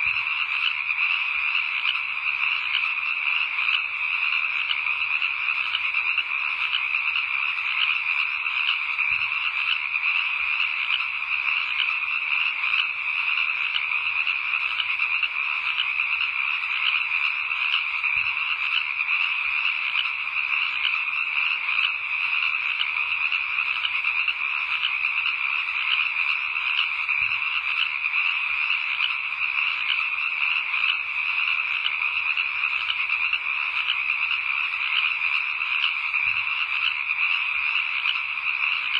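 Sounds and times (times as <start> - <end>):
chorus of frogs trilling: 0.0 - 38.9.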